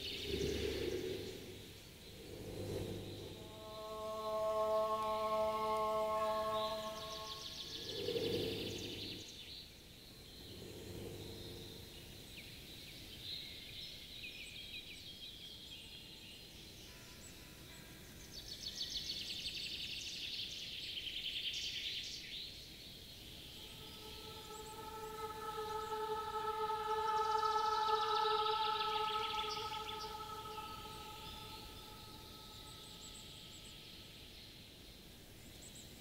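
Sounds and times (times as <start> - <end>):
chord of held tones: 0.0 - 9.2, 23.5 - 33.4
low animal calls: 0.0 - 9.2, 10.4 - 12.1, 23.4 - 33.5
insects chirring: 0.0 - 9.3, 10.0 - 12.7, 23.2 - 34.3.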